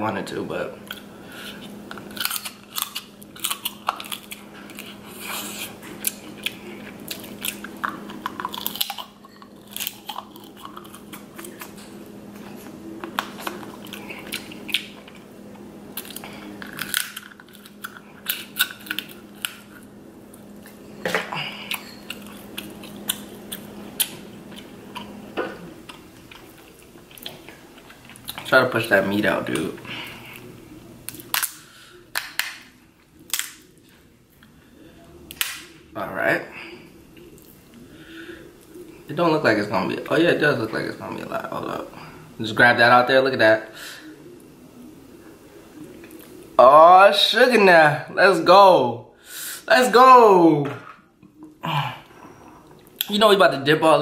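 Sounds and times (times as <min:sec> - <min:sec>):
chewing and biting: 0:00.8 - 0:15.2, 0:15.9 - 0:20.8, 0:21.7 - 0:25.2, 0:25.8 - 0:28.5
crab shell cracking: 0:01.9 - 0:05.0, 0:06.0 - 0:11.8, 0:16.0 - 0:19.8, 0:31.1 - 0:33.8, 0:35.3 - 0:35.8.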